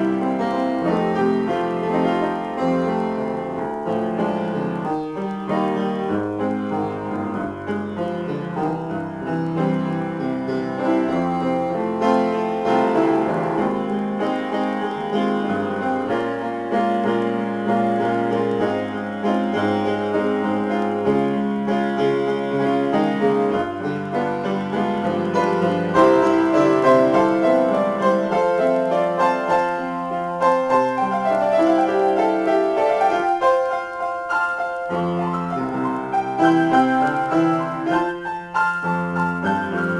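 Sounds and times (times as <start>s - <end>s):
solo piano: 0.0s - 39.9s.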